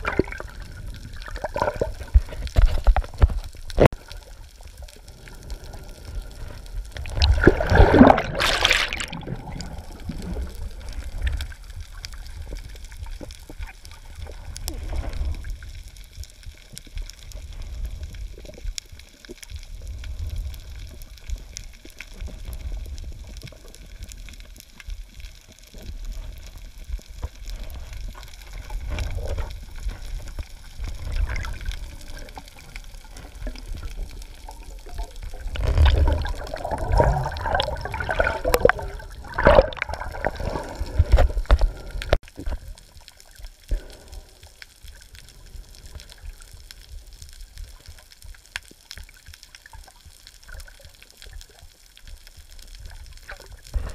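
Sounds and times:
underwater surging pulses: 0.0 - 2.4, 4.1 - 15.6, 26.4 - 42.4
underwater bubbling and gurgling: 0.0 - 53.9.

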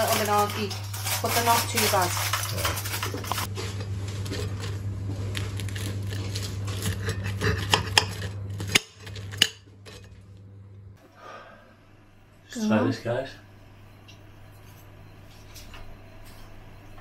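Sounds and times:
cutlery scraping on ceramic plate: 6.7 - 10.2.

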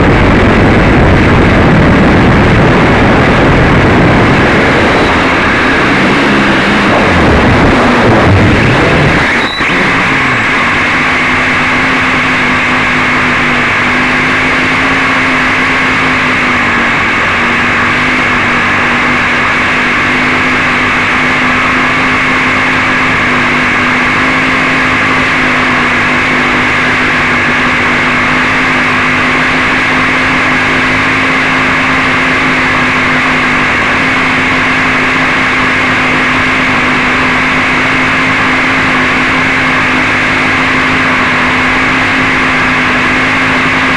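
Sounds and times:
drone motors humming: 0.0 - 43.9.

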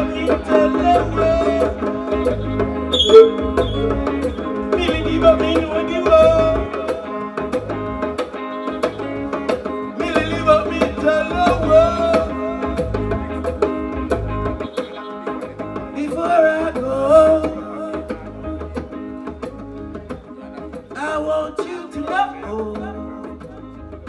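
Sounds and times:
man singing into microphone: 0.0 - 7.6, 9.9 - 13.0, 15.9 - 18.8, 20.6 - 23.8
drums and percussion beat: 0.0 - 24.0.

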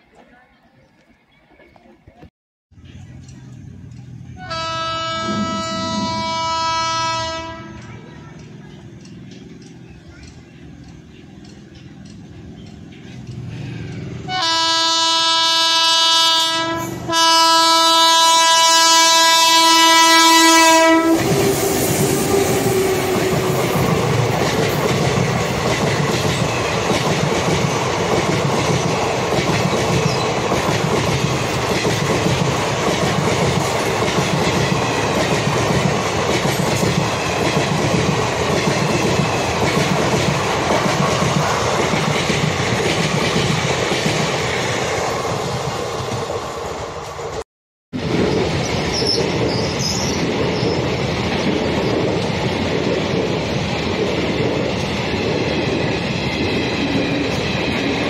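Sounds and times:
train wheels clattering on rails: 2.8 - 14.7, 20.2 - 47.4, 48.0 - 58.0
train horn blasts: 4.4 - 7.9, 14.2 - 21.8.

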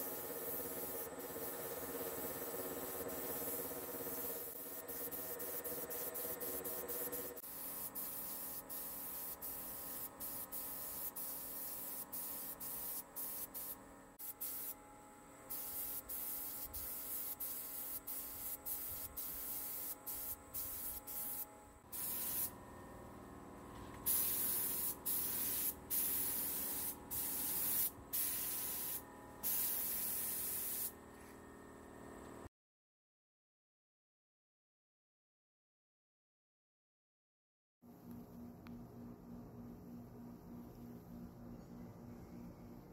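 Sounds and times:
paint spray gun hissing bursts: 0.0 - 14.8, 15.5 - 22.6, 24.0 - 30.9.

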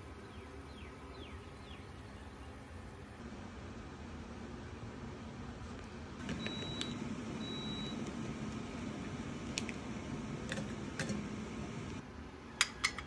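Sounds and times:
steady low hum: 0.0 - 12.7
high beep: 6.4 - 8.0.

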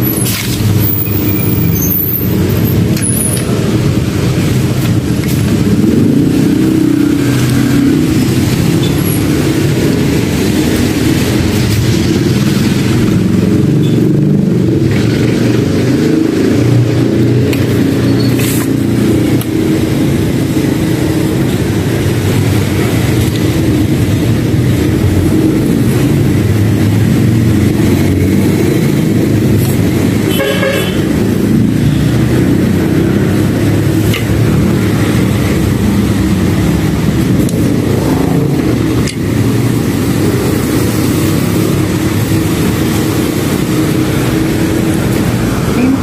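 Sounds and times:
motor traffic rumble: 0.0 - 46.0
car horn toot: 30.3 - 31.1.

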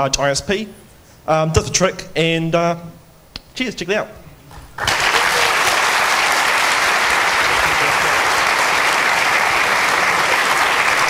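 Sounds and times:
audience clapping: 4.8 - 11.0.

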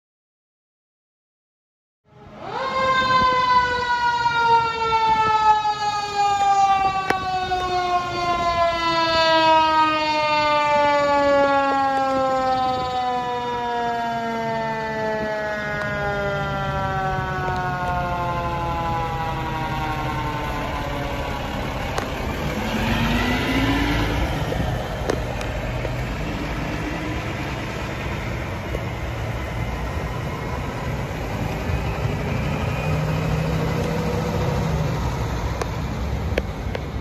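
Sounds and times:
siren: 2.0 - 37.0
fire engine diesel engine running: 15.5 - 37.0.

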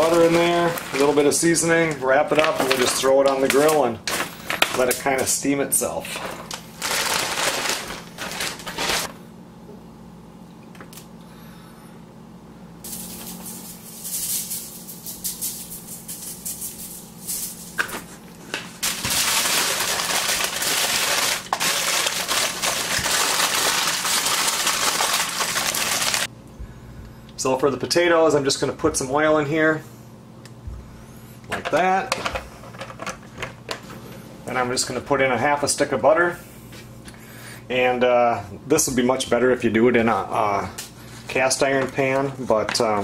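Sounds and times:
aluminium foil crinkling: 0.0 - 5.4, 6.0 - 9.1, 12.9 - 26.3
frozen vegetables rattling onto foil: 0.0 - 5.4, 6.1 - 9.1, 18.8 - 26.3.

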